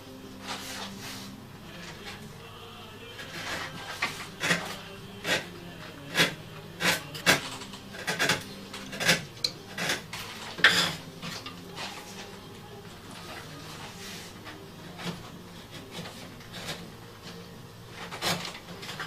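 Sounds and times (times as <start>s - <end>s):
hand tool scraping wooden box: 6.1s - 11.1s.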